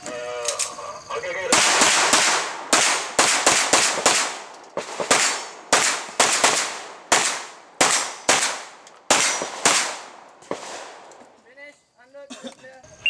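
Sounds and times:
handgun shots: 0:05.0 - 0:10.8.

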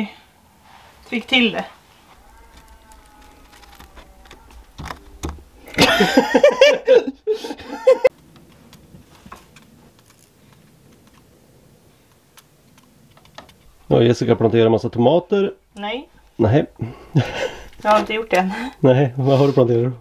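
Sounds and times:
laughter in choppy bursts: 0:05.7 - 0:08.1.

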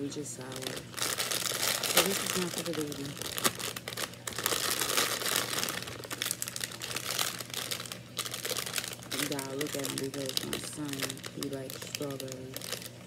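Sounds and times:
plastic bag crinkling: 0:00.4 - 0:13.0.

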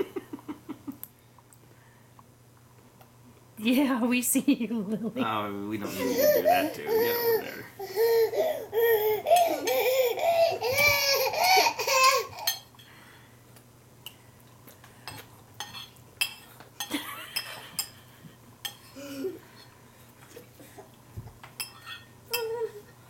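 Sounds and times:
toddler giggling: 0:05.9 - 0:12.5.

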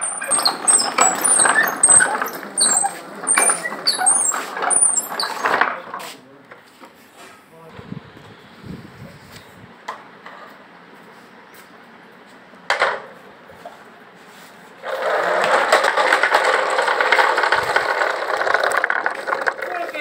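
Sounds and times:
loud dense rattle: 0:00.0 - 0:05.7, 0:14.8 - 0:20.0.

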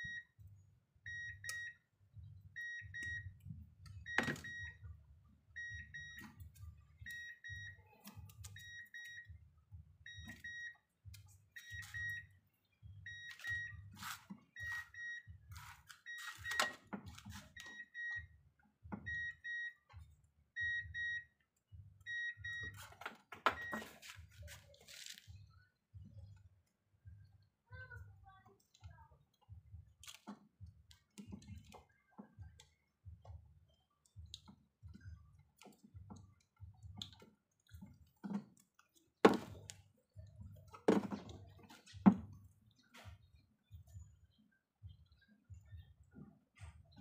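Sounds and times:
car warning chime beeping: 0:00.0 - 0:00.4, 0:01.0 - 0:09.4, 0:10.0 - 0:21.4, 0:22.0 - 0:24.0.

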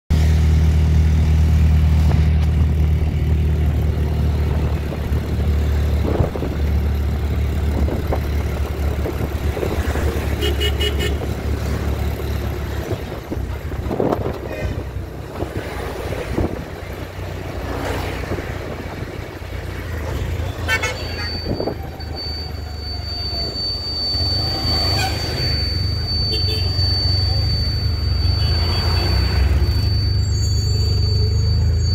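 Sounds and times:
traffic noise: 0:00.1 - 0:31.9
vehicle engine drone: 0:00.1 - 0:31.9
short horn beeps: 0:09.8 - 0:11.4, 0:20.3 - 0:31.9.

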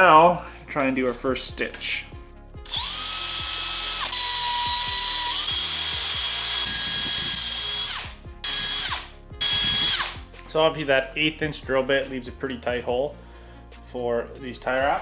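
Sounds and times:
cordless drill boring through rubber: 0:02.6 - 0:10.2.

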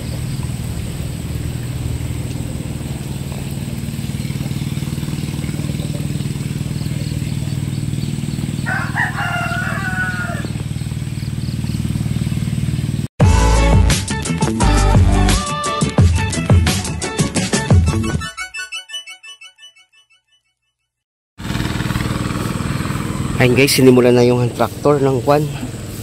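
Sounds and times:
engine humming: 0:00.0 - 0:13.1, 0:21.4 - 0:26.0
rooster crowing: 0:08.5 - 0:10.6.

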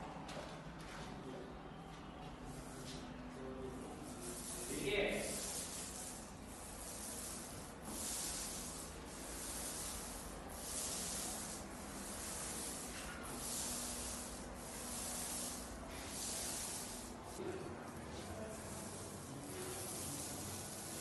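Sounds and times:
paint roller rubbing hiss: 0:03.7 - 0:21.0.

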